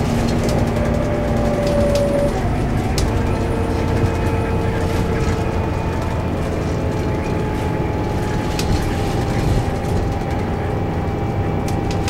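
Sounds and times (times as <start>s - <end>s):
bus engine and road rumble: 0.0s - 12.0s
thin steady whine: 0.0s - 12.0s.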